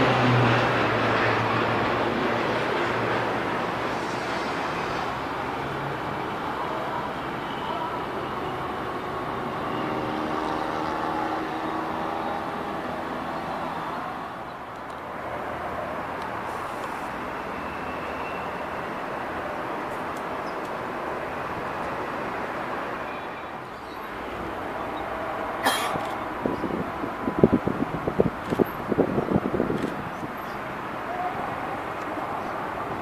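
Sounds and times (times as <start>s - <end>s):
turboprop aircraft droning: 0.0s - 6.6s.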